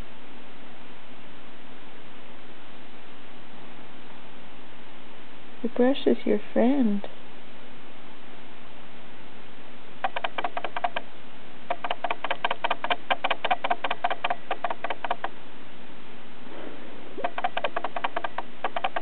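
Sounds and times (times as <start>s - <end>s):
brush scraping and clicking: 10.0s - 11.0s, 11.7s - 15.3s, 17.2s - 19.0s.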